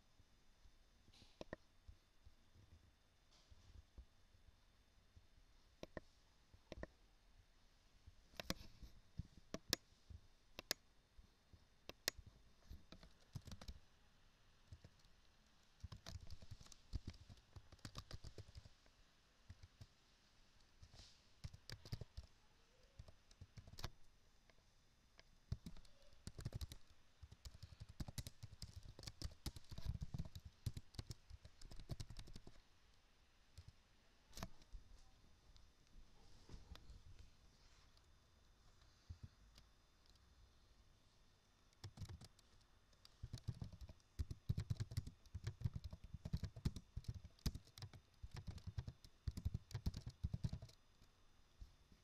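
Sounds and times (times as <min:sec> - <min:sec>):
keyboard typing clicks: 0:08.4 - 0:08.7, 0:10.6 - 0:10.8, 0:11.9 - 0:13.8, 0:15.8 - 0:18.7, 0:21.4 - 0:22.3, 0:23.0 - 0:24.0, 0:25.5 - 0:32.6, 0:41.8 - 0:50.8.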